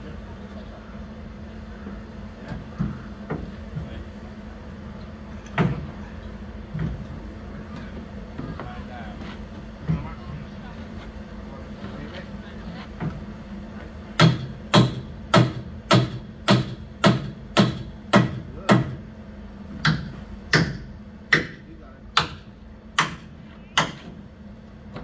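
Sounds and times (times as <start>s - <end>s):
hammer striking metal: 14.2s - 19.0s.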